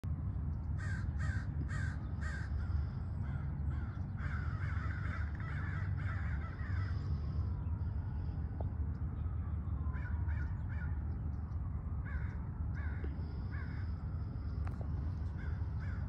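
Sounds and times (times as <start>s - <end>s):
steady low rumble: 0.0s - 16.0s
harsh chattering bird calls: 0.7s - 7.2s.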